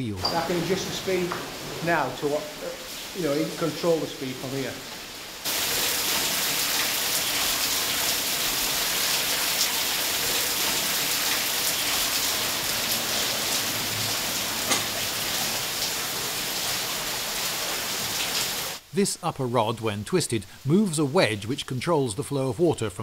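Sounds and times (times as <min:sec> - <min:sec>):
water splashing off water wheel: 0:00.4 - 0:04.1, 0:05.0 - 0:18.8.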